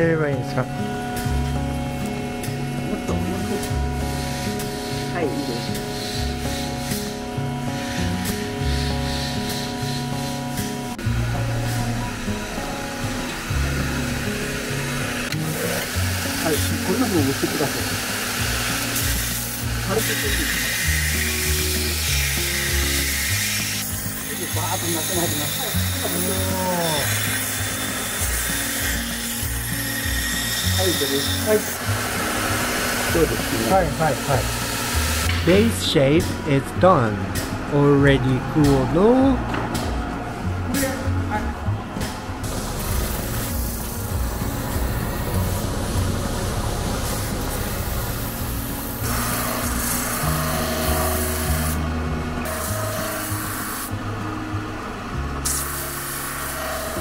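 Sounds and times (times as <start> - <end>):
electric grinder grinding steel: 0.0 - 40.0, 42.0 - 57.0
background music with held chords: 0.0 - 57.0
abrasive rasping on metal blade: 4.0 - 10.7, 15.2 - 35.6.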